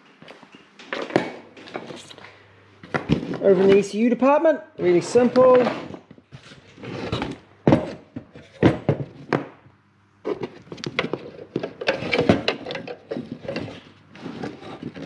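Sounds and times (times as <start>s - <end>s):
wires rustling on wooden bench: 10.2s - 15.0s.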